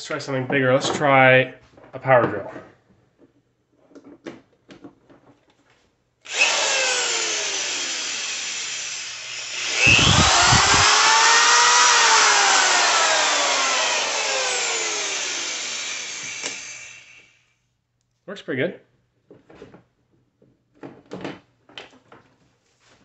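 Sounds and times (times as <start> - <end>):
electric drill whining: 6.3 - 17.4.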